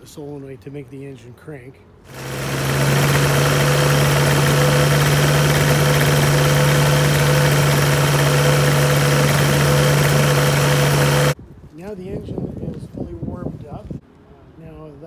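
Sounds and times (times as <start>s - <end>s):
two-stroke engine idling: 2.1s - 11.4s.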